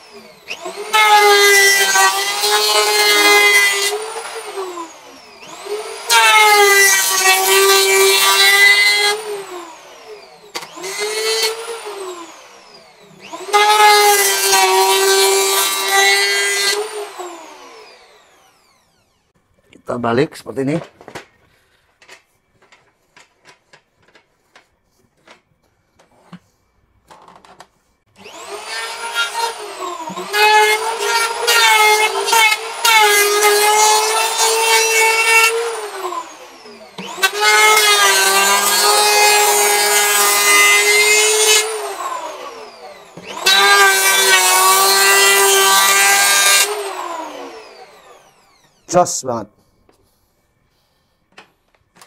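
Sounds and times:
planer shaving wood: 0:00.0 - 0:19.2, 0:28.1 - 0:50.1
electric planer whining: 0:00.0 - 0:19.3, 0:28.1 - 0:49.0.

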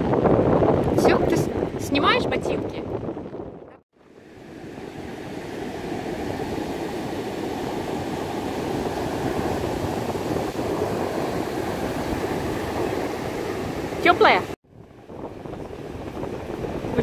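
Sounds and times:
wind rumbling on microphone: 0:00.0 - 0:17.0
waves breaking on beach: 0:04.0 - 0:17.0.

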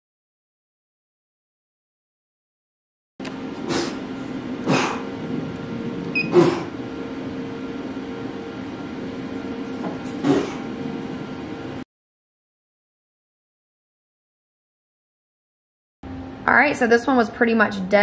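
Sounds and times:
laser engraver humming: 0:03.3 - 0:11.8.

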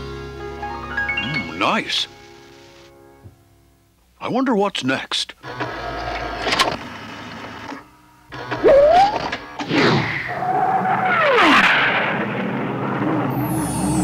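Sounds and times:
whoosh: 0:11.0 - 0:14.0
whistling pitch glides: 0:13.2 - 0:14.0.

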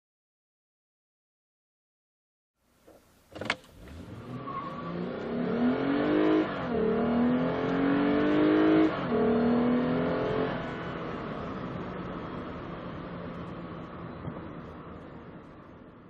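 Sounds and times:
car engine accelerating: 0:03.4 - 0:16.0.

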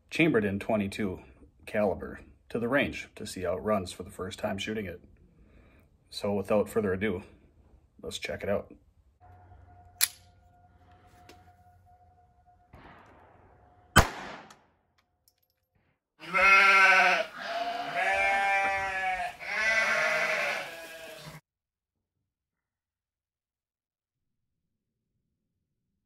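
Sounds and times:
pistol shot: 0:12.7 - 0:14.8.

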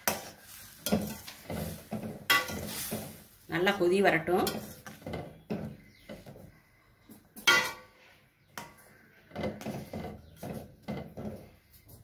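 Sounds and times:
metal ladle scraping steel pot: 0:00.0 - 0:03.2, 0:07.4 - 0:11.2.

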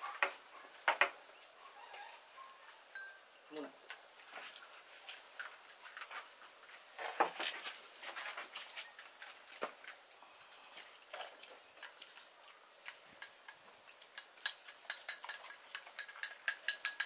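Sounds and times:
chopsticks clicking on bowls: 0:12.8 - 0:17.0
utensil tapping ceramic bowl: 0:14.2 - 0:17.0.

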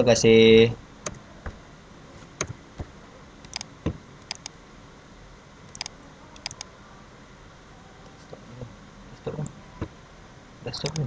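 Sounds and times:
keyboard and mouse clicks: 0:02.4 - 0:04.6, 0:05.7 - 0:06.7.

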